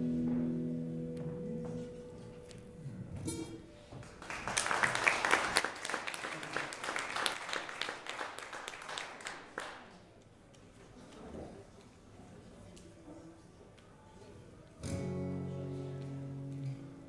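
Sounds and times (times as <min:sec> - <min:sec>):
audience clapping: 0:04.0 - 0:10.1.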